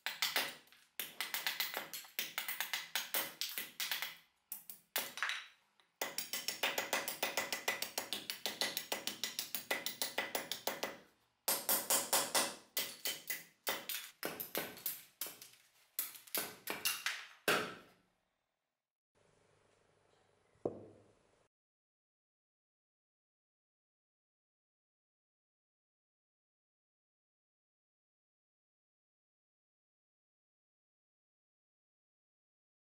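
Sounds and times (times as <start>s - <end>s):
hatchet chopping wood: 11.5s - 15.4s, 16.4s - 17.8s
single knock: 20.7s - 21.0s.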